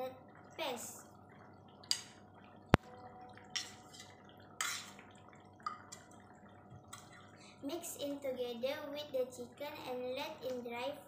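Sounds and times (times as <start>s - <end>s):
spoon scraping ceramic plate: 3.5s - 5.0s.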